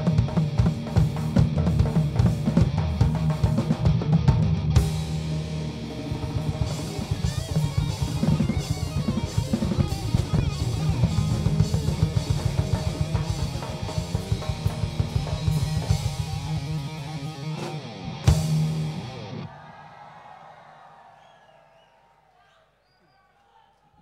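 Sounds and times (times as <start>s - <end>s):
drum kit played hard: 0.0s - 19.0s.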